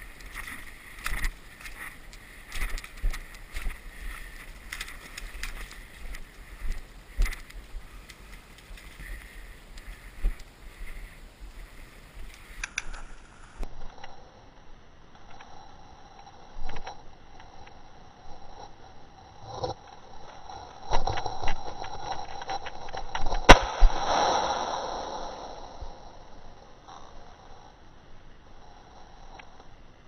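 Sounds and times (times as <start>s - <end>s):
footsteps through undergrowth: 0.0s - 12.6s.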